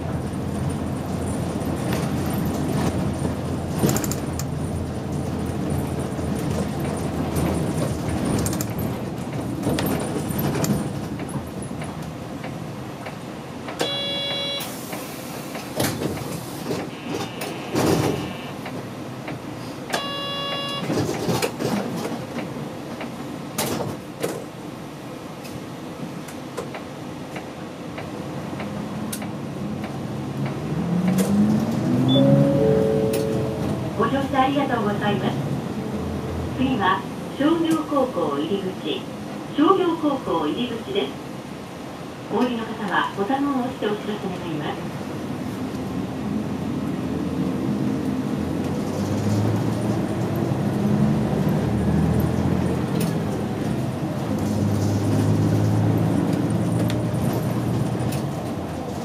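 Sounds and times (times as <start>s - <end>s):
bus engine: 0.0s - 59.0s
hiss of air: 14.7s - 16.7s
short chime: 32.1s - 33.6s.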